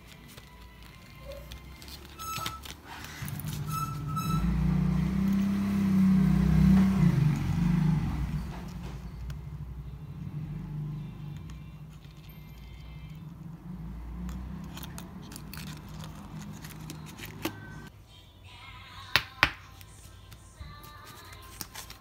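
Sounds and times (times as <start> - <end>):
vehicle engine passing by: 1.2 - 17.9.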